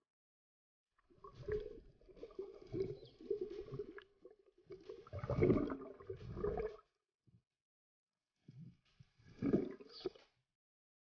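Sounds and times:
underwater gurgling and sloshing: 0:01.0 - 0:07.1, 0:08.4 - 0:10.4.

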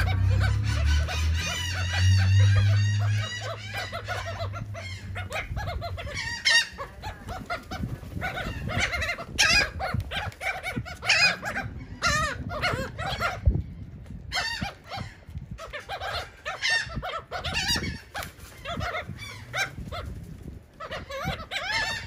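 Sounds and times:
gulls squawking: 0:00.0 - 0:22.0.

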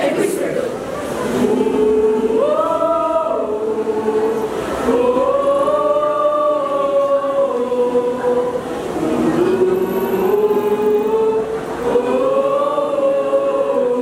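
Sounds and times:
group of voices singing: 0:00.0 - 0:14.0.

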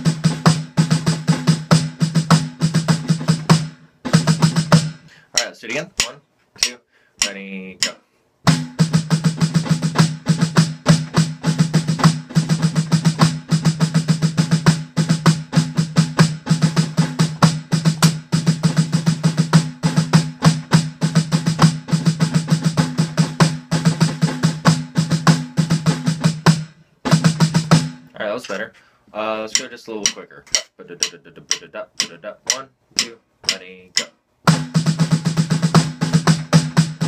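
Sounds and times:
snare drum roll on mesh pad: 0:34.5 - 0:37.0.

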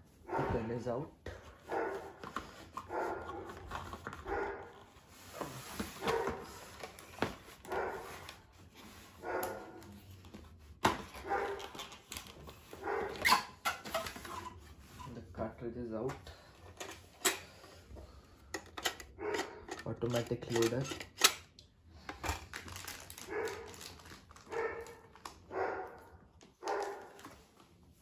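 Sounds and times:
cardboard and plastic handled: 0:01.3 - 0:21.4, 0:22.0 - 0:28.0
dog barking and whining: 0:01.7 - 0:02.2, 0:02.9 - 0:03.5, 0:04.2 - 0:04.7, 0:06.0 - 0:06.5, 0:07.7 - 0:08.1, 0:09.2 - 0:09.8, 0:11.2 - 0:11.7, 0:12.7 - 0:13.8, 0:19.1 - 0:19.7, 0:24.5 - 0:27.2.

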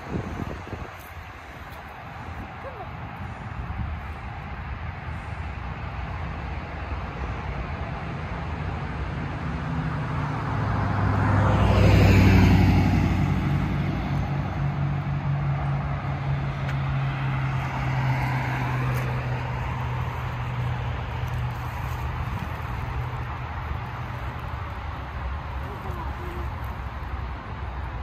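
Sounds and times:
low traffic hum: 0:00.0 - 0:28.0
car driving past: 0:09.0 - 0:22.0.

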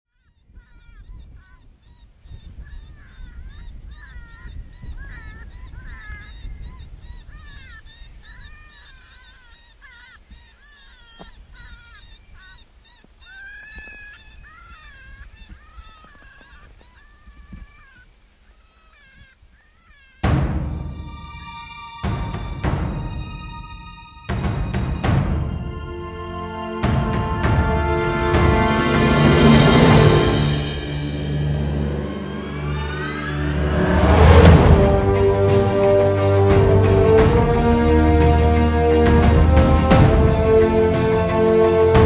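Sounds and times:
geese honking: 0:00.1 - 0:20.4, 0:32.0 - 0:42.0.

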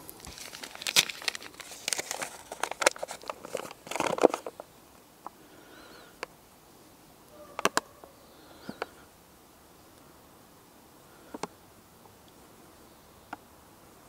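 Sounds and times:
paper bag crinkling: 0:00.0 - 0:04.7.

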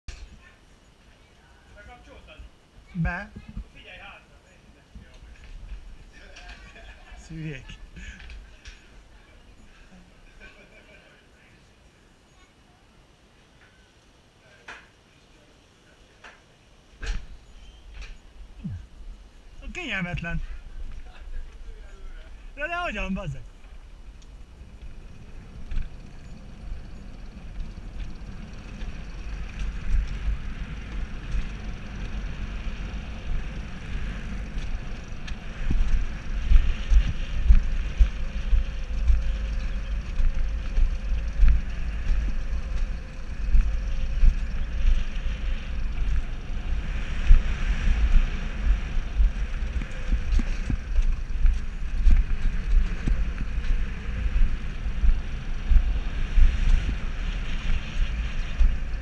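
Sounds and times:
sled wheels rattling on rails: 0:19.5 - 0:59.0
wind buffeting microphone: 0:23.5 - 0:59.0.

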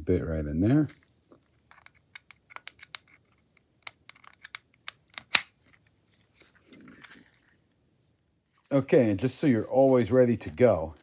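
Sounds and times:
metal and plastic clicks: 0:01.7 - 0:05.5.

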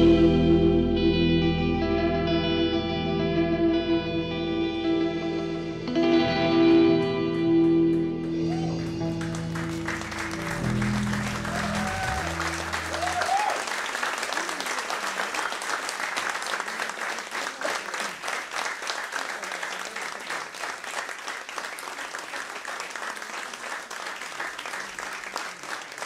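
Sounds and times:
audience applauding: 0:07.0 - 0:26.0.

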